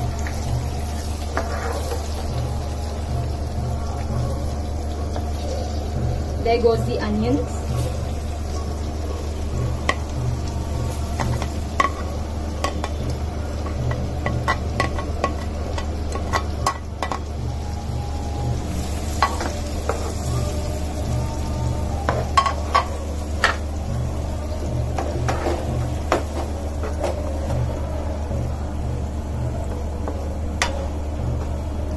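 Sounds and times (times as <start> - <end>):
low steady hum: 0.0 - 31.9
onions sizzling in a pan: 0.0 - 31.9
spatula scraping a pan: 0.9 - 2.4, 25.0 - 27.6.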